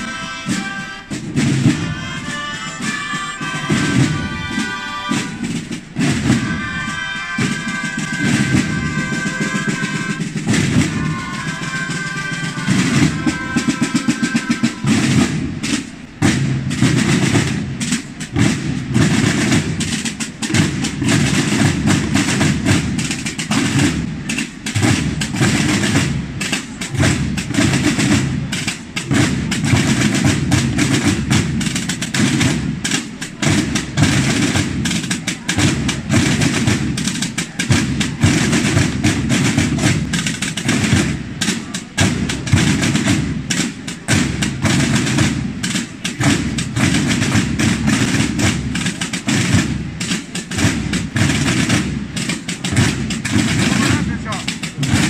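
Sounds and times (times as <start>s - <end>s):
snare rolls: 0.0s - 55.0s
tarotas playing a held melody: 0.0s - 55.0s
bass drum beats: 14.8s - 55.0s.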